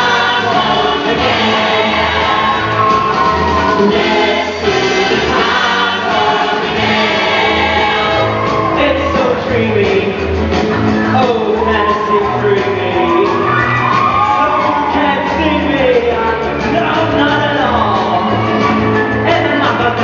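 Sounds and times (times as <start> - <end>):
choir singing: 0.0 - 8.8
pulsing bass line: 0.0 - 20.0.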